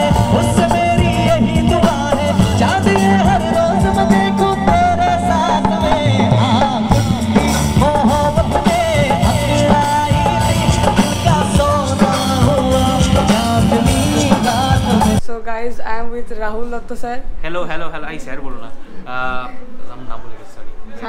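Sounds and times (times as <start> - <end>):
live band music: 0.0 - 15.2
person singing: 0.0 - 15.2.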